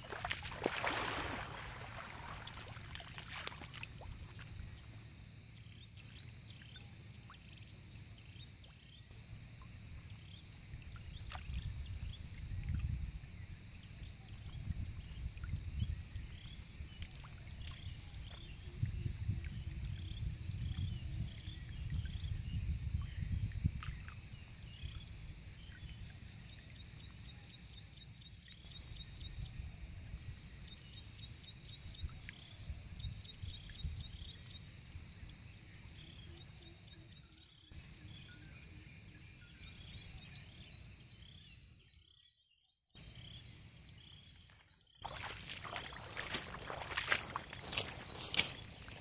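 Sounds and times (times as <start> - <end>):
pond water sloshing: 0.0 - 5.4, 9.7 - 14.0, 15.2 - 19.6, 43.1 - 49.0.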